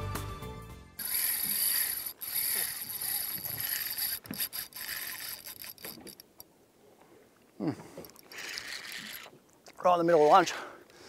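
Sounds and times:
fishing reel gears whirring: 0:01.0 - 0:06.4, 0:08.0 - 0:09.4
sea noise: 0:01.0 - 0:10.5
wind: 0:01.0 - 0:11.0.

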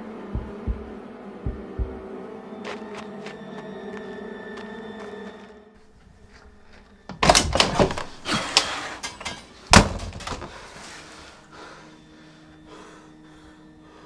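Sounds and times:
faint steady hum: 0:00.0 - 0:04.9
door banging and knocking: 0:07.1 - 0:08.2, 0:09.7 - 0:10.5.

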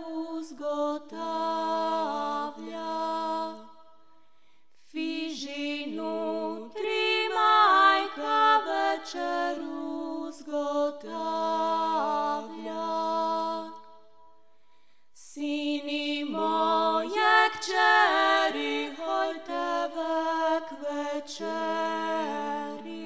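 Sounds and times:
woman singing folk melody: 0:04.9 - 0:12.8.

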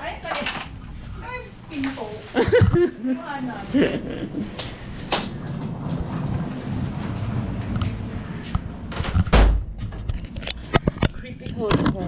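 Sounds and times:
steady low hum: 0:00.0 - 0:12.0
door shutting with thud: 0:08.9 - 0:09.8.

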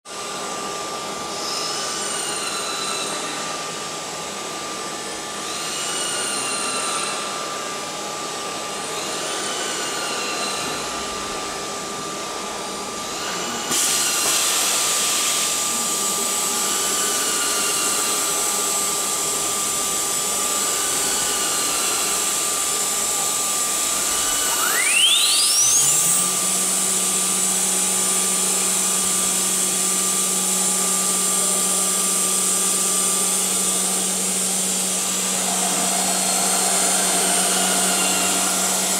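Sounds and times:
machining centre whine: 0:07.3 - 0:38.9
hiss: 0:13.7 - 0:16.0
short rising motor whines: 0:19.6 - 0:38.9.

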